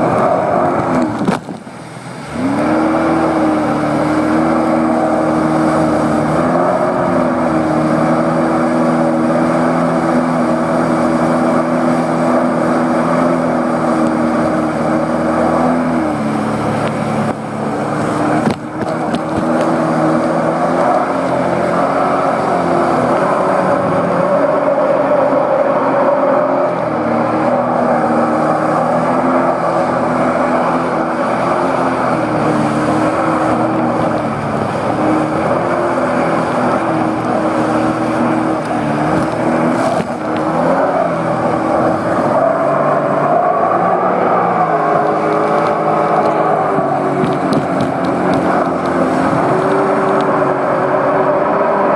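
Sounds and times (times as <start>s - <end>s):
water rushing against hull: 0.0s - 51.9s
watercraft engine running: 0.0s - 51.9s.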